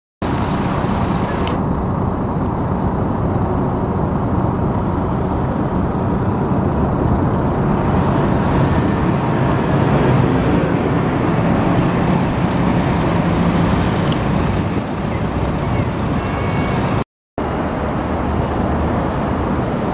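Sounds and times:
bus diesel engine droning: 0.2s - 18.7s.

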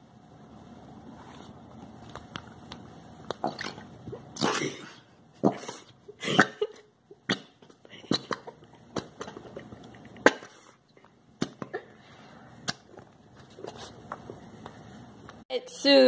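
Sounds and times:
cough-like burst: 4.4s - 6.8s, 10.2s - 10.8s.

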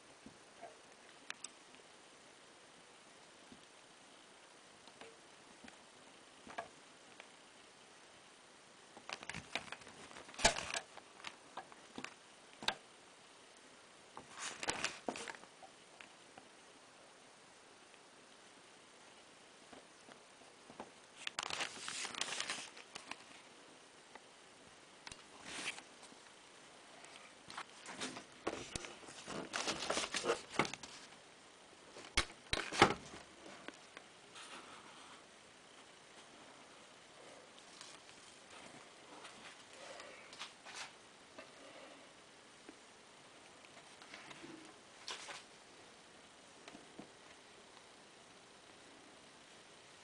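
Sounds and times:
newspaper rustling: 21.2s - 23.4s, 25.4s - 25.9s, 27.5s - 31.1s.

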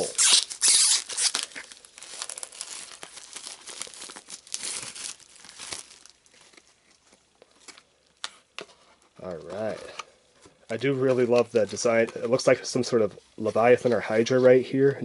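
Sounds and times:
plastic shrink-wrap tearing and crinkling: 0.0s - 8.3s.

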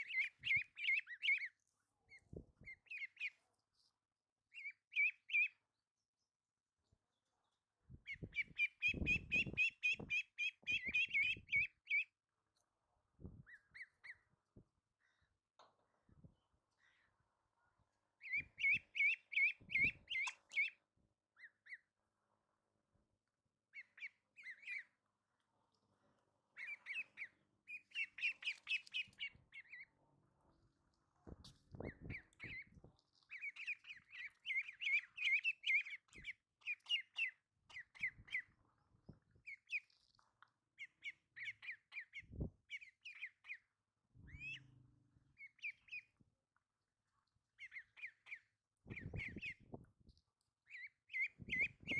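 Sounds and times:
ducklings peeping: 0.0s - 3.9s, 4.5s - 5.7s, 8.0s - 12.2s, 13.4s - 14.4s, 18.1s - 22.0s, 23.7s - 25.2s, 26.4s - 30.0s, 30.6s - 46.3s, 47.4s - 51.9s.

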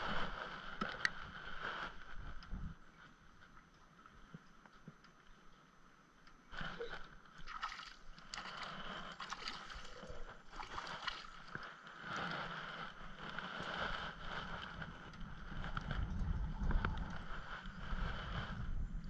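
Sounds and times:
water splashing and sloshing: 6.6s - 18.1s.

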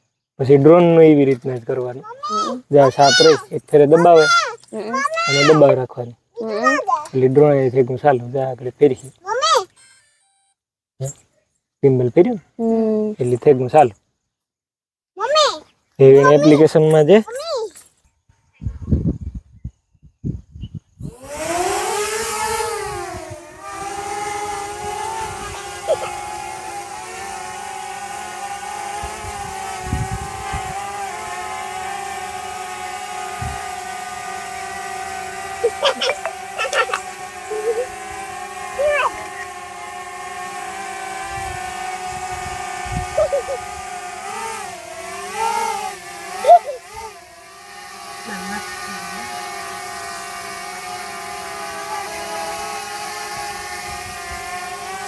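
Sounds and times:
drone propellers whining: 2.1s - 5.8s, 21.0s - 55.0s.

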